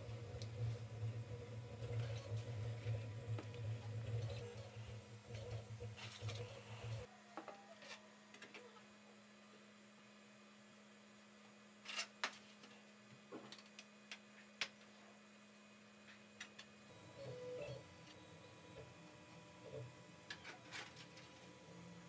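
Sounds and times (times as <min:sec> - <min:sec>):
steady low hum: 0:00.0 - 0:07.1.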